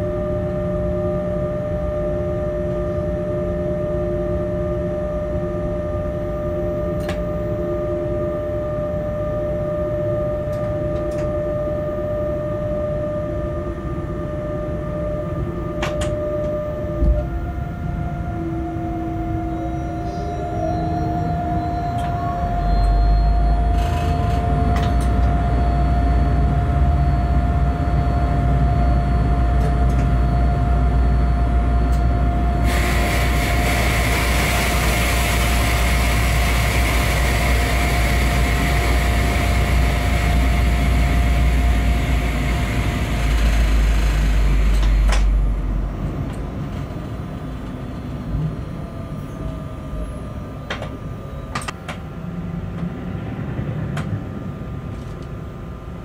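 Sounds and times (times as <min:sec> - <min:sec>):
steady whine: 0:00.0 - 0:56.0
locomotive heavy low rumble: 0:13.6 - 0:56.0
hiss: 0:32.6 - 0:45.0.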